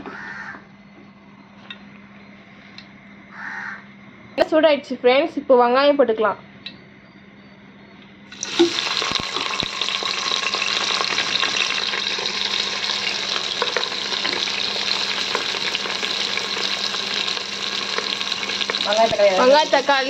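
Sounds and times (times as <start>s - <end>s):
vegetables sizzling in hot oil: 8.3s - 20.0s.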